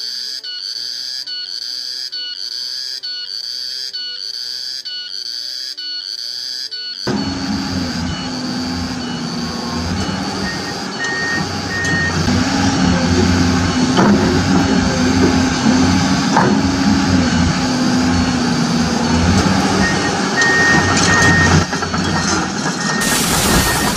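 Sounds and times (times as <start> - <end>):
reversing alarm beeps: 0.0 - 23.9
heavy machinery engine running: 7.1 - 23.9.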